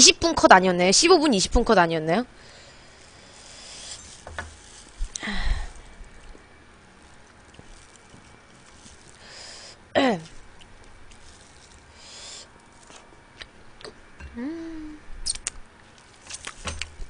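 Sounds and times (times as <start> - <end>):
hummed mm: 11.9 - 15.5.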